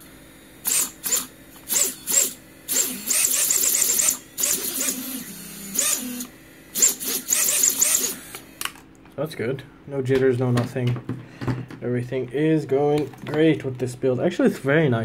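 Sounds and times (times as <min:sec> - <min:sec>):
electric motors whirring whine: 0:00.0 - 0:08.8.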